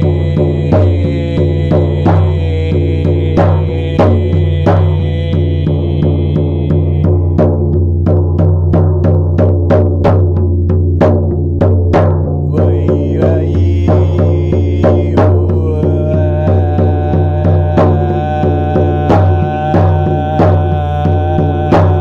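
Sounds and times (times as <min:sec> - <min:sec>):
low sustained drone: 0:00.0 - 0:07.4, 0:12.6 - 0:22.0
drum beaten in steady rhythm: 0:00.0 - 0:22.0.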